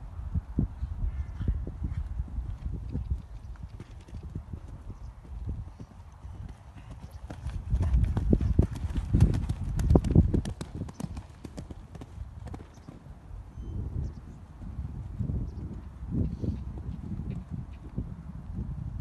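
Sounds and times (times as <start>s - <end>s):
horse hooves cantering on sand: 1.9s - 13.1s, 14.6s - 18.6s.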